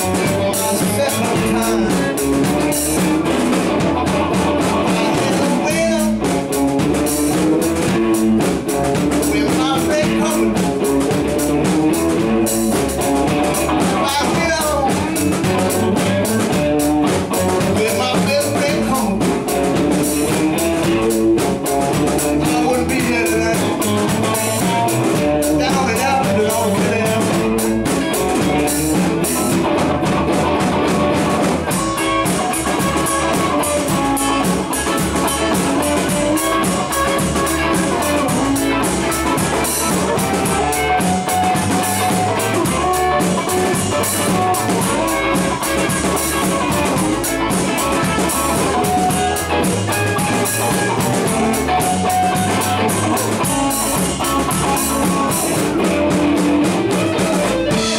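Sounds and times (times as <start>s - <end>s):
blues band playing: 0.0s - 57.9s
man singing into microphone: 0.2s - 2.3s, 4.9s - 6.3s, 9.2s - 10.7s, 13.9s - 15.4s, 17.6s - 19.4s, 22.4s - 24.0s, 25.5s - 27.9s.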